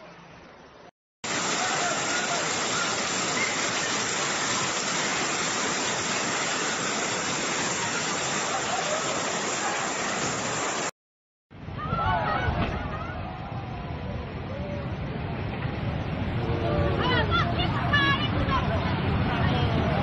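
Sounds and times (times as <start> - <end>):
torrential rain pouring: 1.2 - 11.0.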